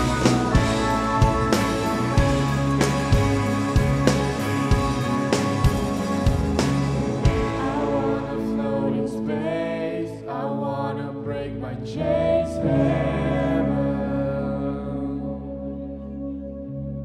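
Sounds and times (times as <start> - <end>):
guitar and keyboard chords: 0.0 - 17.0
person singing: 7.3 - 15.8.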